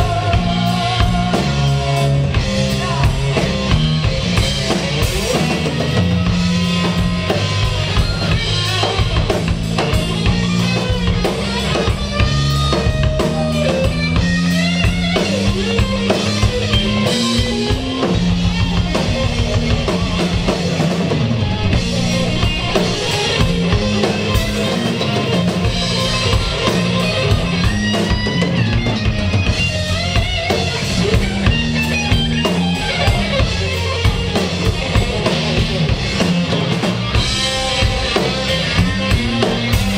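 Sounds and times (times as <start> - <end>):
bass guitar: 0.0 - 39.9
drum kit: 0.0 - 39.9
electric guitar solo with bends: 16.6 - 34.4.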